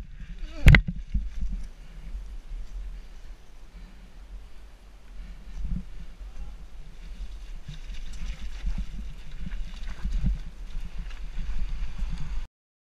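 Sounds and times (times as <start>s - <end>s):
wind on microphone: 0.0s - 12.5s.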